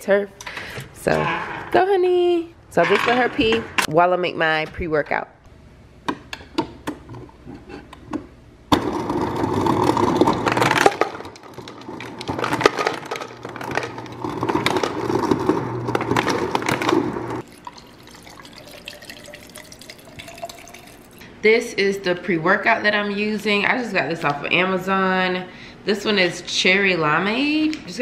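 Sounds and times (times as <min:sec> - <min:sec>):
water dispenser filling bottle: 0:14.1 - 0:21.2.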